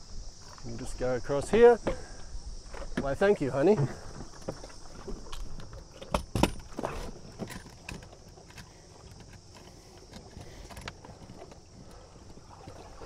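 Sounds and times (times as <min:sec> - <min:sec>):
outboard motor being clamped: 0:01.6 - 0:13.0
light clicks and rattles: 0:02.6 - 0:12.4.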